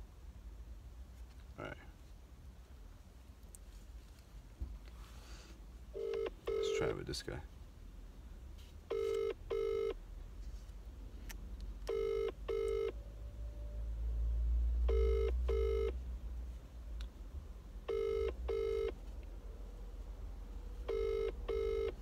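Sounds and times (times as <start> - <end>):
phone ringback tone: 6.0 - 6.9, 8.9 - 10.0, 11.9 - 12.9, 14.9 - 15.9, 17.9 - 19.0, 20.9 - 22.0.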